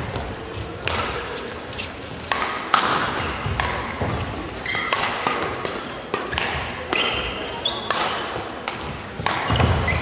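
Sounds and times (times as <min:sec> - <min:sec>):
rackets striking shuttlecock: 0:00.0 - 0:01.4, 0:02.1 - 0:10.0
shoes squeaking on court: 0:03.2 - 0:05.2, 0:06.9 - 0:08.3, 0:09.4 - 0:10.0.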